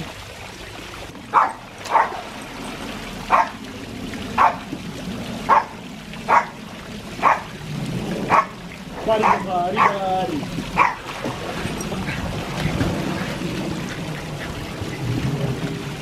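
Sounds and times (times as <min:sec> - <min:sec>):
small dog barking: 0:01.3 - 0:02.1, 0:03.3 - 0:03.6, 0:04.4 - 0:04.6, 0:05.5 - 0:05.7, 0:06.3 - 0:06.6, 0:07.2 - 0:07.5, 0:08.3 - 0:08.5, 0:09.2 - 0:10.0, 0:10.8 - 0:11.0.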